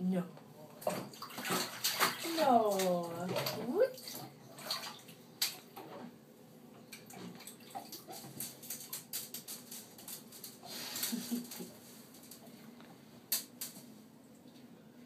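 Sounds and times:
bathwater splashing: 0.8s - 6.1s, 6.9s - 11.9s.

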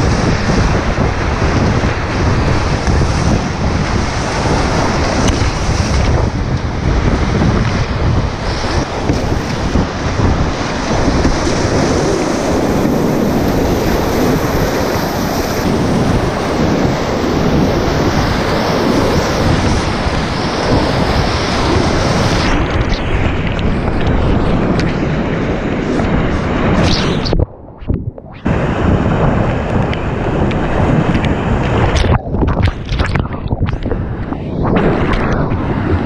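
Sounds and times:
water splashing against camera: 25.9s - 36.0s.

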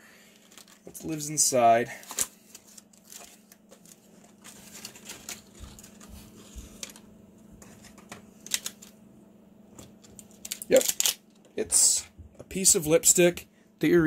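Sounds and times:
plastic packaging clicks and rustles: 0.3s - 9.0s, 9.8s - 11.5s.

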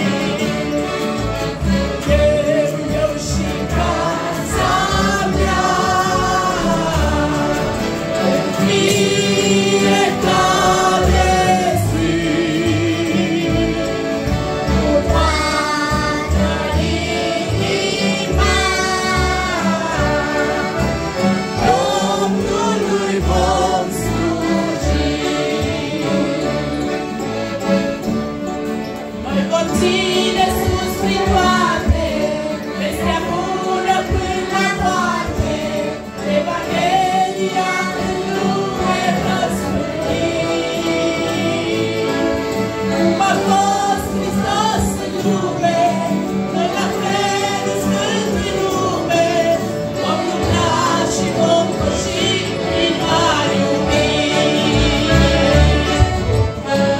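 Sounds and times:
accordion chords: 0.0s - 56.9s
group singing a hymn: 0.0s - 56.9s
guitars: 0.0s - 56.9s
woman singing lead: 29.3s - 42.4s.

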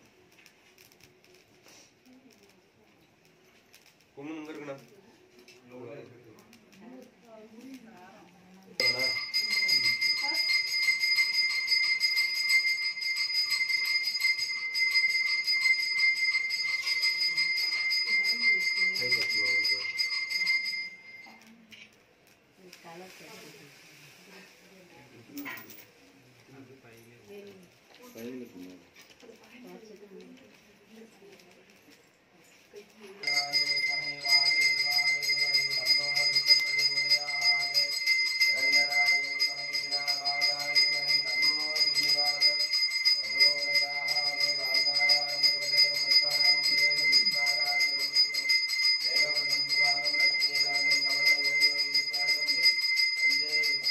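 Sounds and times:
bell rung rapidly: 8.8s - 21.4s, 33.2s - 53.9s.

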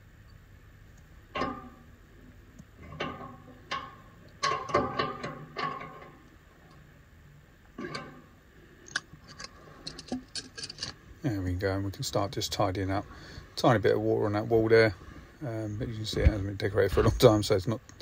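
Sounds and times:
clicks and knocks on metal valve: 2.9s - 6.1s.

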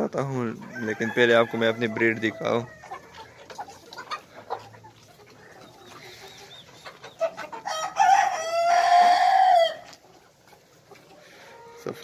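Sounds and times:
chickens clucking softly: 0.0s - 12.0s
cockerel crowing: 0.7s - 3.4s, 7.5s - 9.9s.

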